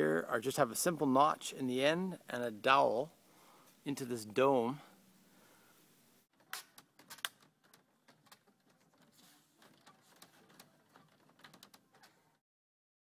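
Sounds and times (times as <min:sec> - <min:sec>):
wooden clicks and knocks: 0:06.4 - 0:12.4.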